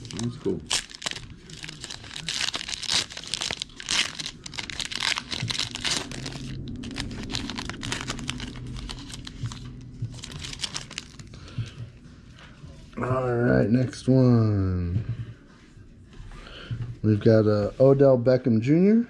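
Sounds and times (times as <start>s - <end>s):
foil wrapper crinkling and tearing: 0.0s - 11.4s.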